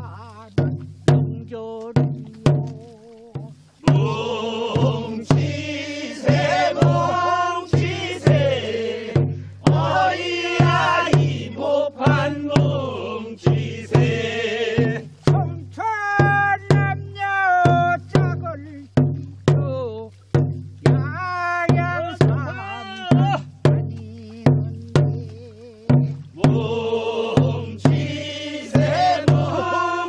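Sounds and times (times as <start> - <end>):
drum beat: 0.0 - 30.0
group singing a work song: 3.8 - 15.5, 25.9 - 30.0.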